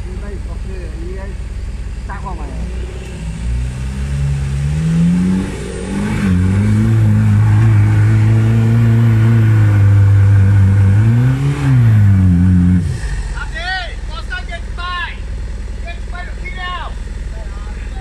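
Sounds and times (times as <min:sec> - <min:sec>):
diesel engine revving hard: 0:02.3 - 0:14.7.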